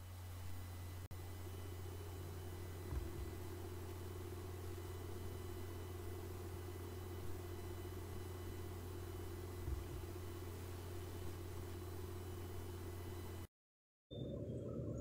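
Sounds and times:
steady low hum: 0.0 - 13.5.

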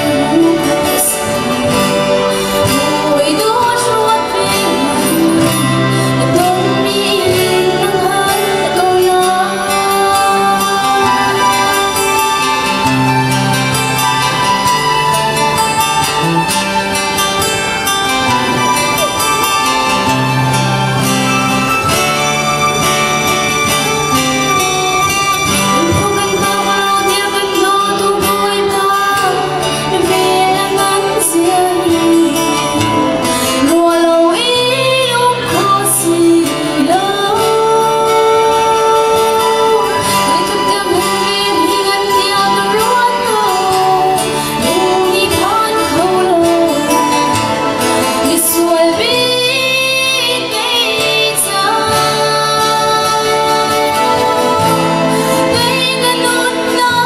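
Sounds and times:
woman singing gospel: 0.0 - 12.4, 25.8 - 47.4, 48.2 - 57.0
instrumental backing music: 0.0 - 57.0.

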